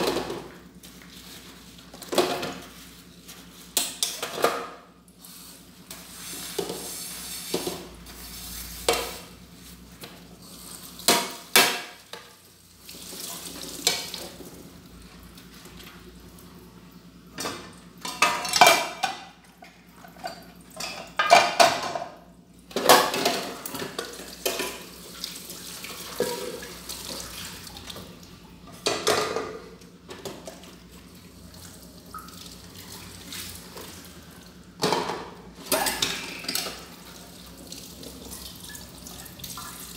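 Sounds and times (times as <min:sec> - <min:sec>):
tap water running: 0:03.8 - 0:08.2, 0:08.8 - 0:16.6, 0:22.7 - 0:39.9
dishes and cutlery clattering: 0:17.4 - 0:19.4, 0:20.0 - 0:22.1, 0:28.8 - 0:29.6, 0:34.8 - 0:36.9.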